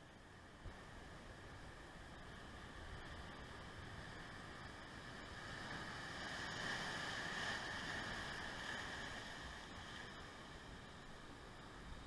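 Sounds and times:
surf breaking over rocks: 0:03.0 - 0:11.0.

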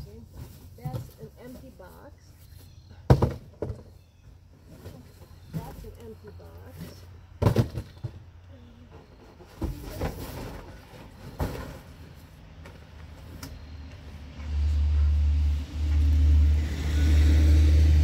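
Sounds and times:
knocks and rustling in a box: 0:00.2 - 0:01.9, 0:04.7 - 0:08.2, 0:09.0 - 0:12.0.

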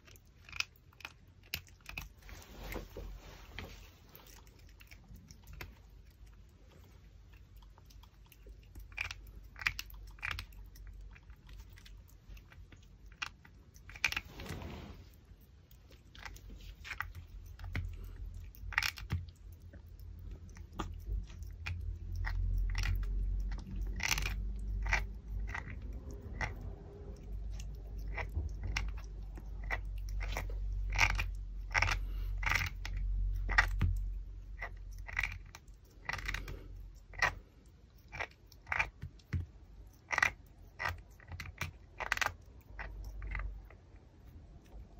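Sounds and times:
puppy chewing bone: 0:00.0 - 0:44.9
low rumble: 0:19.4 - 0:35.5.

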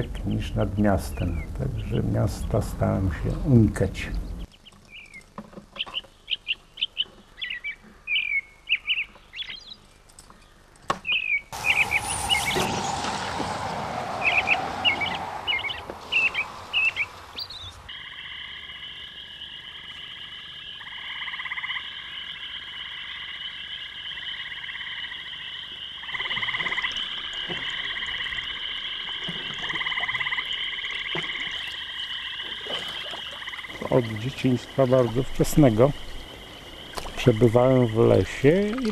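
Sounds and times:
small birds chirping: 0:00.0 - 0:13.2, 0:14.2 - 0:24.8, 0:29.7 - 0:38.9
background hiss: 0:11.5 - 0:26.2, 0:29.9 - 0:38.9
frog chorus croaking: 0:13.6 - 0:38.9.

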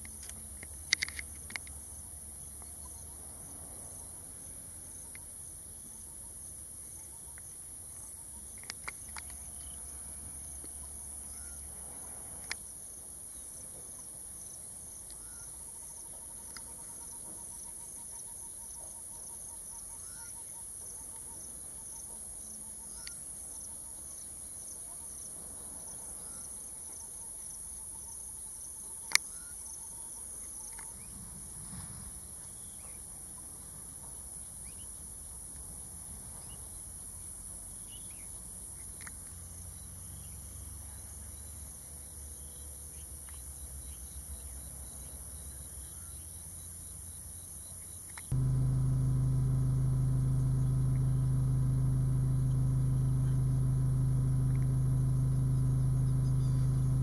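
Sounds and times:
sharp clicks: 0:48.2 - 0:57.0
insect pulsing rhythmically: 0:48.3 - 0:57.0.

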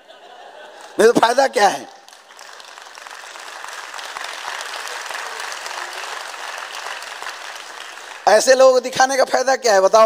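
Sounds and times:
audience clapping: 0:00.7 - 0:01.1, 0:02.0 - 0:09.0.

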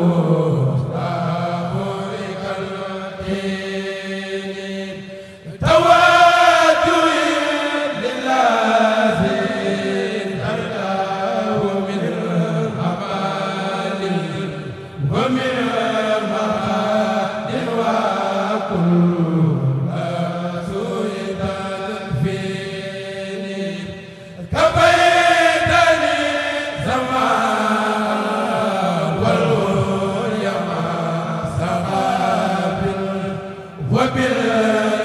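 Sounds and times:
choir chanting: 0:00.0 - 0:35.0.

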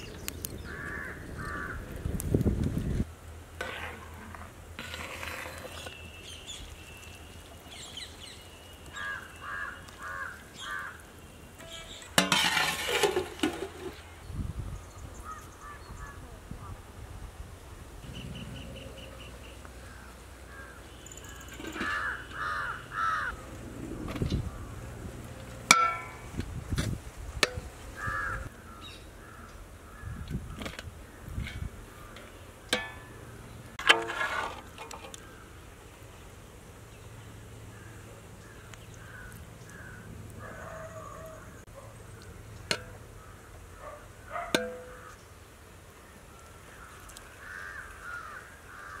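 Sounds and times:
crows cawing: 0:00.6 - 0:01.8, 0:09.0 - 0:11.0, 0:19.8 - 0:23.4, 0:28.0 - 0:30.2, 0:37.8 - 0:41.5, 0:46.6 - 0:49.0
metal spatula scraping pot: 0:03.6 - 0:06.1, 0:11.6 - 0:14.0, 0:21.3 - 0:22.4, 0:33.8 - 0:35.2.

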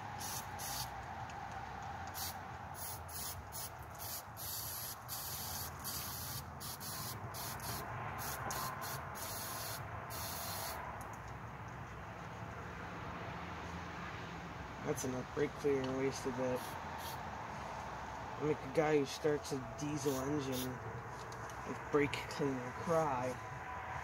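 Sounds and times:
aerosol spray hissing: 0:00.2 - 0:00.9, 0:02.2 - 0:10.8, 0:16.6 - 0:17.2.

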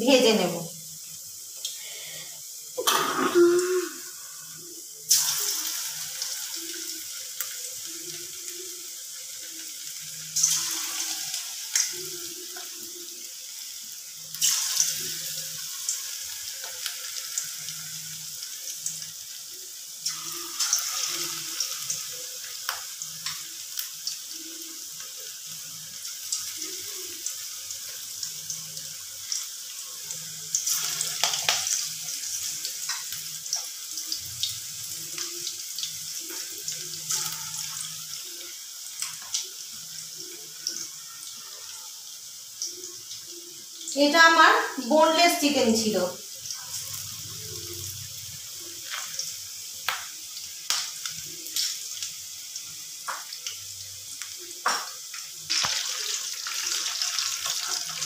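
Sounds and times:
chicken deep-frying in oil: 0:00.0 - 0:58.0.

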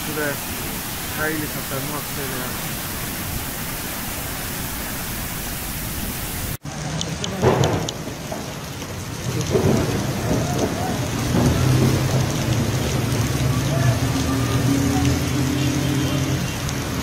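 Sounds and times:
steady rushing hiss: 0:00.0 - 0:06.6
heavy rain: 0:00.0 - 0:17.0
thunder: 0:07.3 - 0:13.1.

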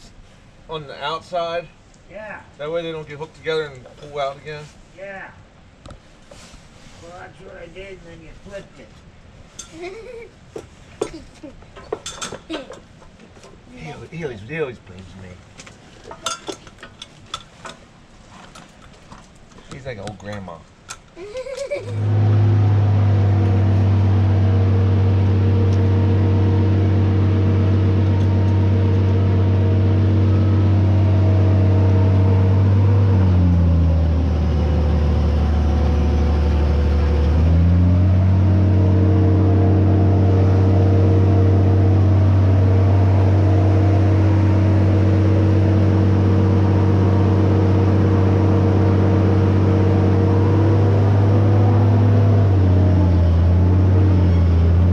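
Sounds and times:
travel lift engine running: 0:21.9 - 0:54.9.

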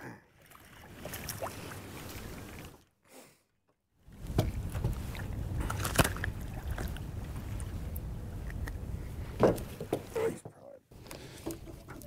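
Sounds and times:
wind and water rumble: 0:00.3 - 0:02.9, 0:04.0 - 0:12.0
knocks on a boat: 0:09.4 - 0:10.1.

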